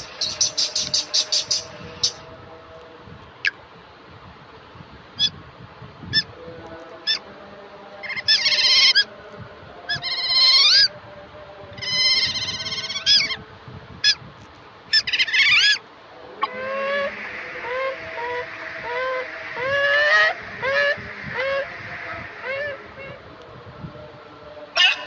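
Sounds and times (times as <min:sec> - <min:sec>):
otter chirping: 0:00.0 - 0:02.2, 0:14.9 - 0:15.8.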